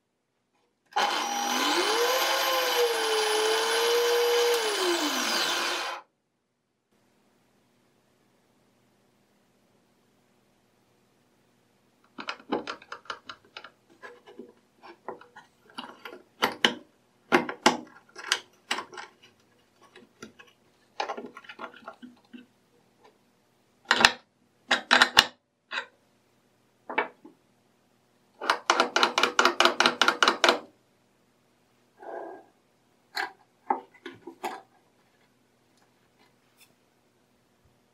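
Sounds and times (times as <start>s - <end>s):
wood and metal knocks and scrapes: 12.2s - 22.4s, 33.2s - 35.2s.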